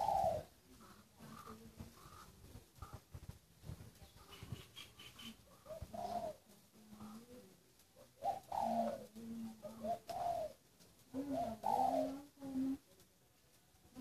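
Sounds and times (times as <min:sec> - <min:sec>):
dove cooing: 0:00.0 - 0:03.0, 0:04.0 - 0:12.9.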